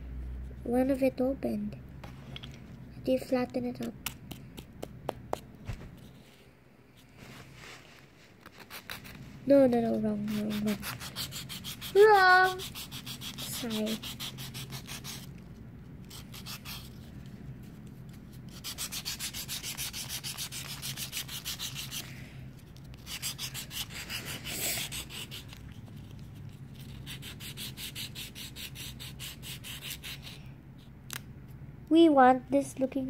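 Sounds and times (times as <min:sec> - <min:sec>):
nail file scraping foil: 0:08.4 - 0:09.2, 0:10.2 - 0:15.4, 0:16.0 - 0:17.3, 0:18.4 - 0:30.4.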